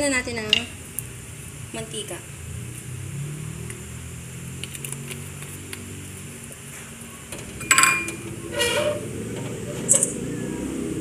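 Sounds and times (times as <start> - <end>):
metal wok clanking: 7.4 - 10.2.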